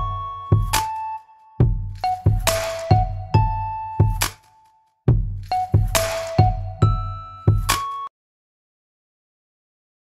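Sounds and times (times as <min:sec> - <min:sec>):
background music with a beat: 0:00.0 - 0:08.1.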